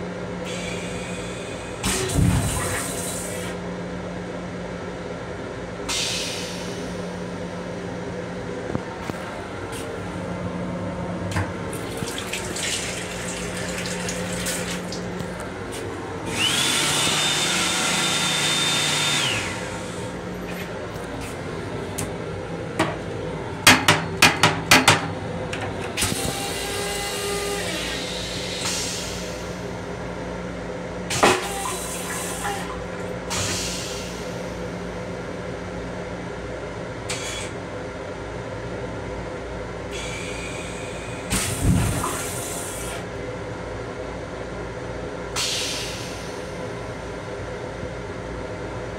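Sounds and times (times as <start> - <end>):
low hum of moving train: 0.0 - 14.4, 19.2 - 48.9
hand dryer whine: 11.4 - 20.2, 23.8 - 29.4.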